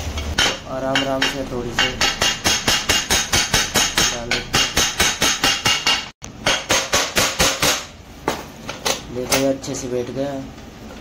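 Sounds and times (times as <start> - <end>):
hammer tapping on metal: 0.3 - 7.9.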